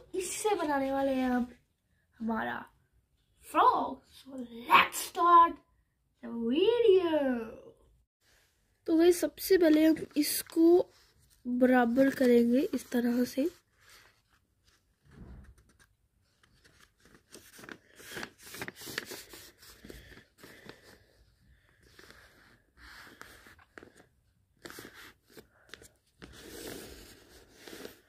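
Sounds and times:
paper rustling and crackling: 9.4s - 28.0s.

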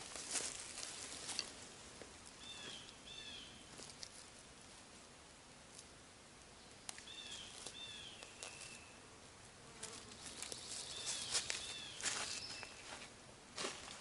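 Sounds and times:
dry leaves crackling underfoot: 0.0s - 4.4s, 6.8s - 9.0s, 9.9s - 14.0s.

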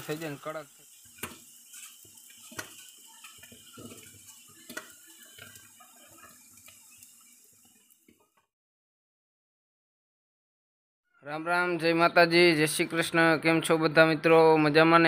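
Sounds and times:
liquid pouring and splashing: 0.0s - 8.4s.

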